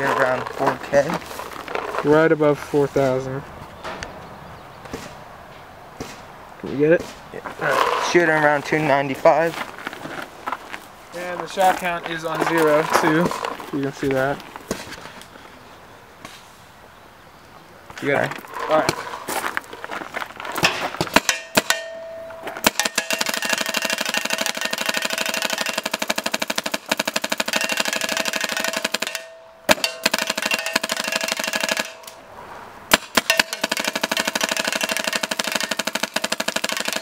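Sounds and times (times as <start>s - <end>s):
paintball marker rapid firing: 22.6s - 32.2s, 32.9s - 37.0s.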